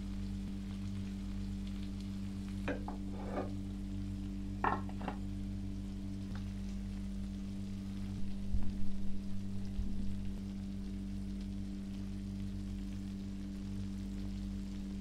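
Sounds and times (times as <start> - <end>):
constant low hum: 0.0 - 15.0
food sizzling on hot plate: 0.0 - 15.0
plate clattering: 2.7 - 3.6, 4.6 - 5.2.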